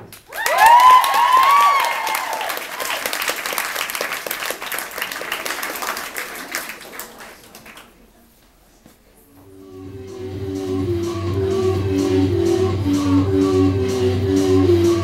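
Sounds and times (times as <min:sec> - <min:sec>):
audience applauding: 0:00.1 - 0:08.0
whoops and cheers: 0:00.3 - 0:03.1.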